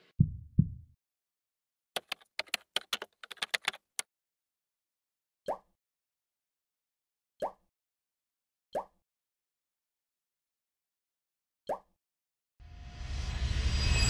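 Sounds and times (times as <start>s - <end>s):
keyboard key clicks: 2.0s - 4.0s.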